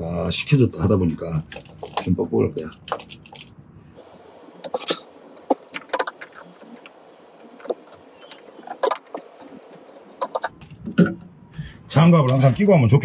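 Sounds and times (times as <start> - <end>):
metal tools clinking: 1.4 - 3.5.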